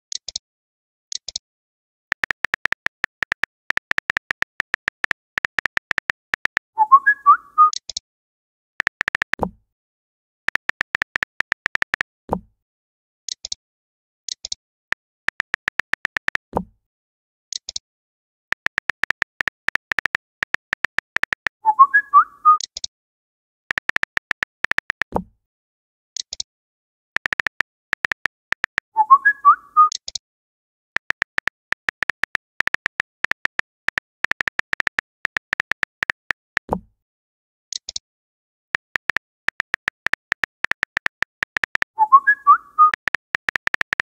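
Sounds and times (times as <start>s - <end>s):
phone keyboard tapping clicks: 2.1s - 6.7s, 8.8s - 9.5s, 10.5s - 12.1s, 14.3s - 16.6s, 18.5s - 21.6s, 23.7s - 25.2s, 27.2s - 28.9s, 31.0s - 36.8s, 37.7s - 38.0s, 38.7s - 42.0s, 42.8s - 44.0s.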